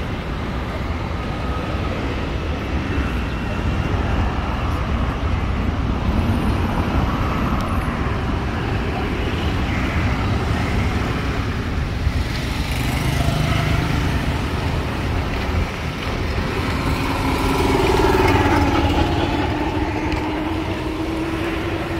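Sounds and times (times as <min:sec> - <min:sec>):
cars passing slowly: 0:00.0 - 0:21.9
motorcycle engine approaching: 0:15.9 - 0:21.9.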